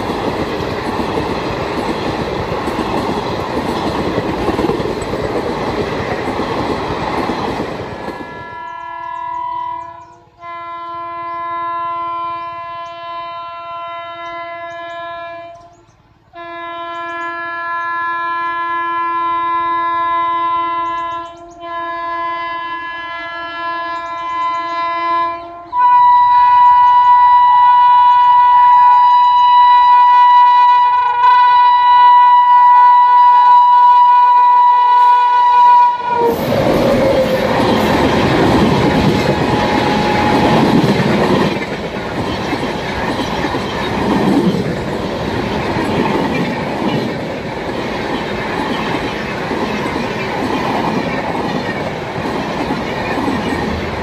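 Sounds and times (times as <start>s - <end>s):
wheels clacking over rail joints: 0.0s - 9.0s, 36.2s - 54.0s
train rushing past: 0.0s - 10.6s, 30.7s - 54.0s
locomotive horn blast: 8.2s - 15.8s, 16.4s - 40.8s.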